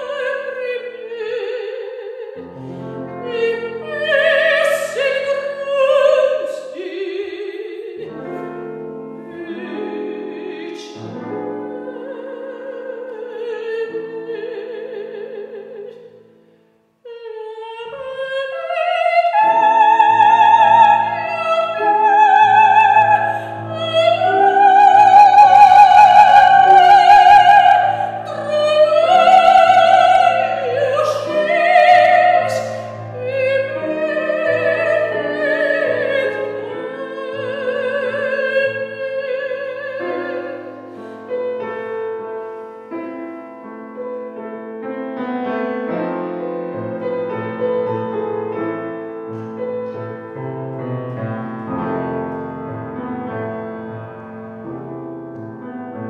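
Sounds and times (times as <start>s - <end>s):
woman singing operatically: 0.0s - 2.4s, 3.1s - 16.2s, 17.1s - 40.8s
grand piano: 0.0s - 56.0s.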